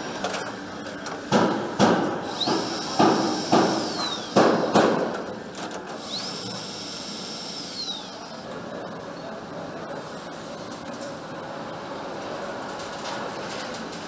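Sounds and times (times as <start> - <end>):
sharp metallic bangs: 1.2 - 5.3
power screwdriver whine: 2.3 - 4.8, 6.0 - 8.4.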